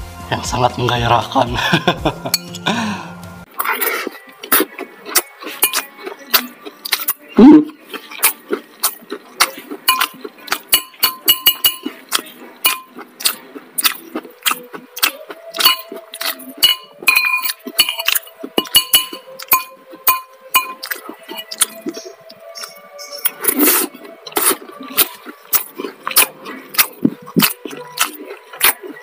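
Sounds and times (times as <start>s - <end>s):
metal spoon clinking on bowl: 5.6s - 5.9s, 9.4s - 12.0s, 12.6s - 12.9s, 15.6s - 21.8s.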